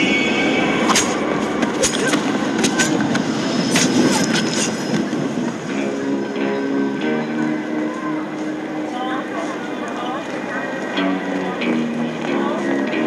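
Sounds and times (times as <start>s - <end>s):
rumble of trains and crowd: 0.0s - 13.0s
low sustained music notes: 4.9s - 13.0s.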